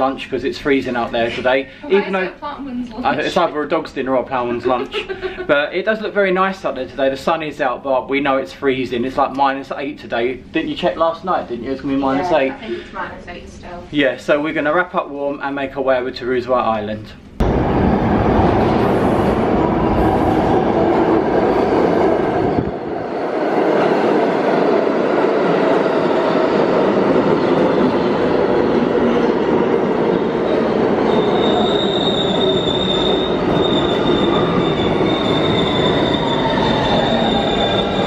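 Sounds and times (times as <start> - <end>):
subway train rumbling: 0.0 - 14.5, 17.2 - 38.0
falling whine of slowing train: 17.4 - 38.0
high steady squeal: 31.0 - 38.0.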